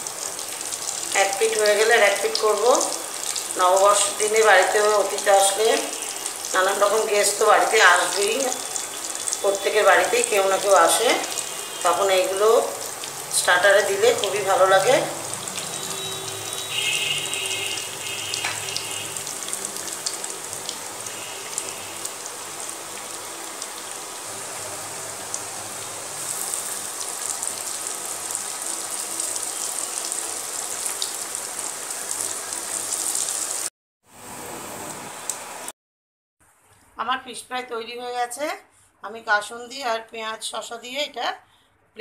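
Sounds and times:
fish sizzling in hot oil: 0.0 - 13.3, 15.0 - 33.7.

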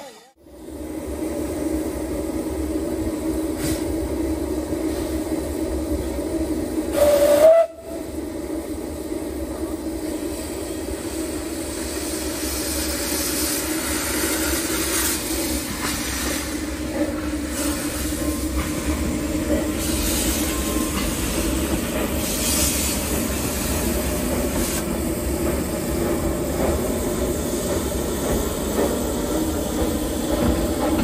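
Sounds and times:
steam train running: 0.0 - 31.0
steam whistle blast: 6.9 - 8.1.

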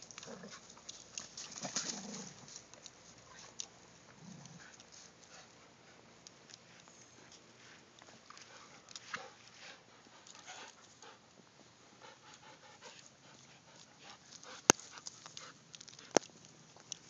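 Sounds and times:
small ticks: 0.0 - 5.6, 12.3 - 17.0
dogs panting: 0.0 - 17.0.

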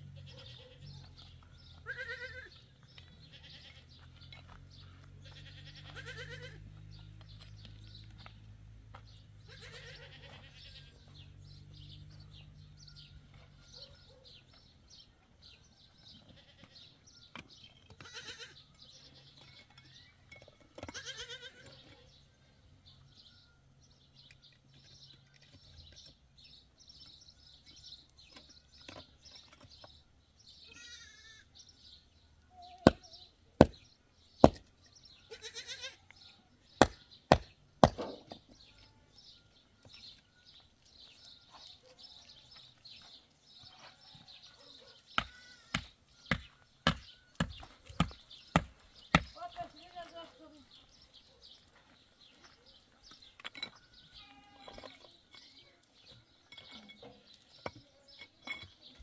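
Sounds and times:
livestock bleating: 1.8 - 2.6, 3.2 - 3.9, 5.2 - 6.7, 9.4 - 11.2, 16.1 - 17.0, 18.0 - 18.7, 20.9 - 21.8, 30.6 - 31.6, 35.3 - 36.1, 54.1 - 54.9.

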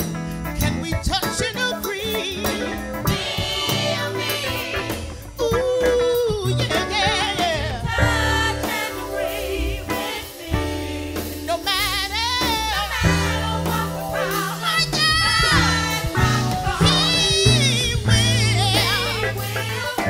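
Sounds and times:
bass: 0.0 - 20.0
drums: 0.0 - 20.0
woman singing with vibrato: 6.7 - 10.8, 11.7 - 20.0.

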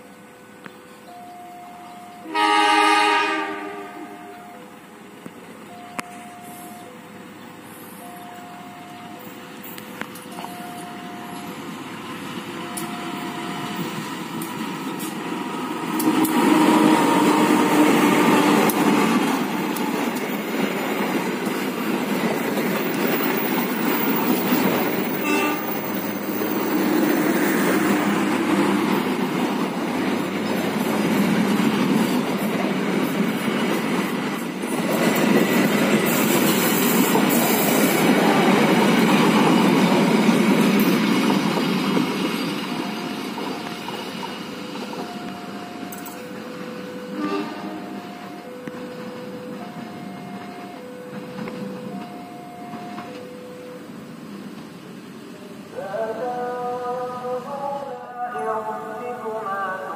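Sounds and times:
locomotive engine: 0.0 - 56.0
coaches rumbling over rails: 0.0 - 59.9
faint train horn: 1.8 - 4.7, 16.0 - 18.8, 24.9 - 26.3, 46.8 - 48.7.

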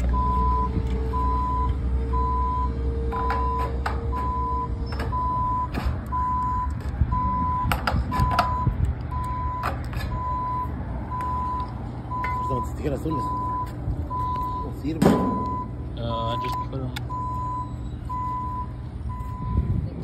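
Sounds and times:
reversing alarm beeping: 0.1 - 19.8.

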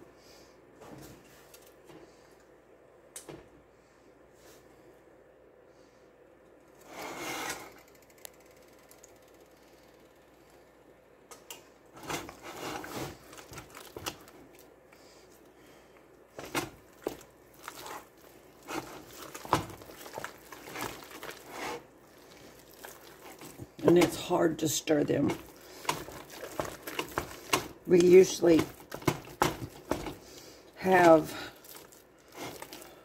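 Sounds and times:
wooden spoon beating dough in pot: 12.0 - 14.7, 16.3 - 33.0.

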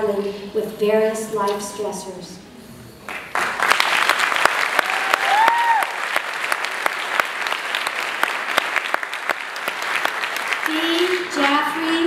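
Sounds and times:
audience clapping: 3.1 - 11.9.

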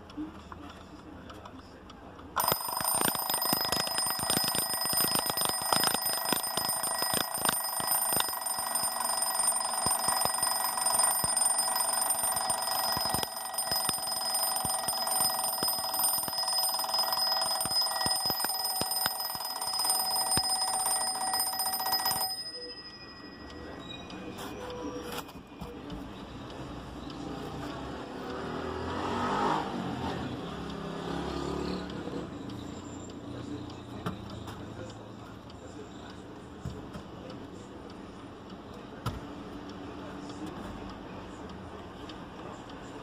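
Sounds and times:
twin-bell alarm clock ringing: 2.4 - 25.6.

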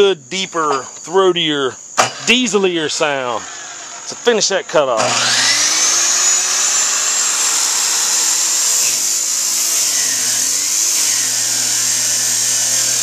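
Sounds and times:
chop saw whining: 2.0 - 13.0
cutoff wheel grinding steel pipe: 5.0 - 13.0.

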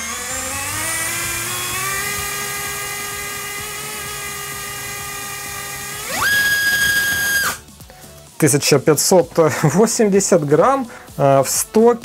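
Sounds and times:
electric motor whining: 0.0 - 7.6.

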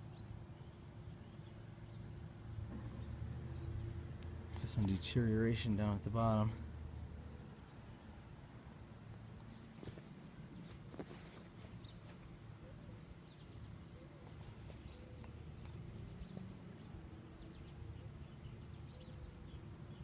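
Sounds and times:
small birds chirping: 0.0 - 20.0
footsteps scuffing on shingles: 9.7 - 12.3.

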